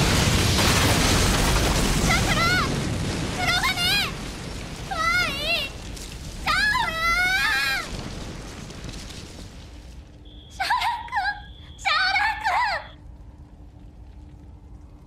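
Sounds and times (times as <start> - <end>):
low rumble: 12.9 - 15.0.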